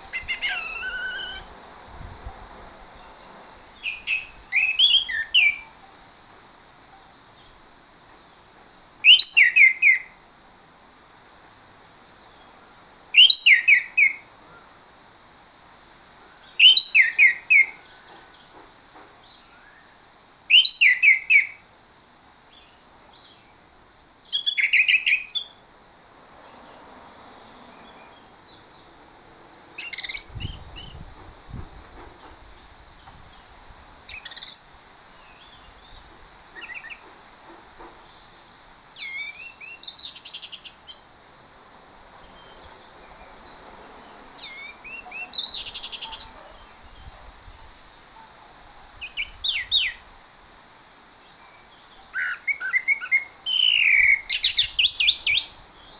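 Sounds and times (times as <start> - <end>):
thrush singing whistles and trills: 0.0 - 1.6, 3.0 - 5.8, 8.8 - 10.2, 13.1 - 14.3, 16.4 - 18.0, 18.8 - 21.6, 22.6 - 25.6, 29.8 - 31.1, 34.1 - 37.0, 38.0 - 41.1, 44.3 - 47.2, 49.0 - 50.1, 51.2 - 55.9
steady high hiss: 0.0 - 55.9.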